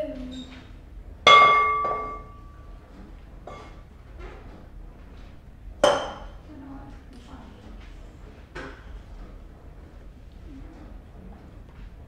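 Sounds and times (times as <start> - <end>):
glass bowl ringing: 1.2 - 2.6.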